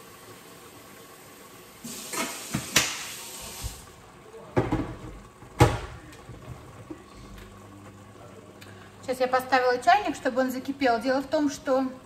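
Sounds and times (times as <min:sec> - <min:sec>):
tap water filling kettle: 0:01.3 - 0:04.0.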